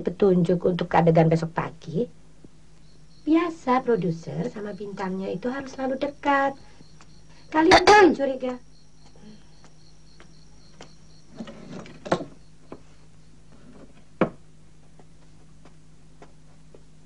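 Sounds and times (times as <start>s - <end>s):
low hum: 0.0s - 17.0s.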